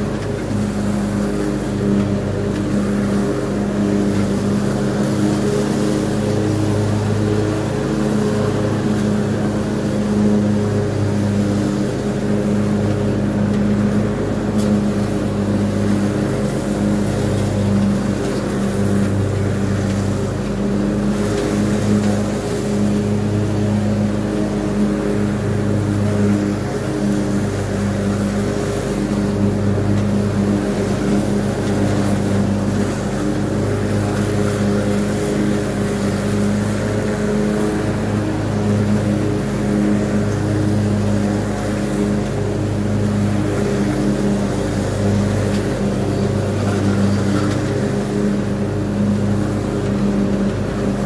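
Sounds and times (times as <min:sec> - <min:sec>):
riding mower engine droning: 0:00.0 - 0:51.0.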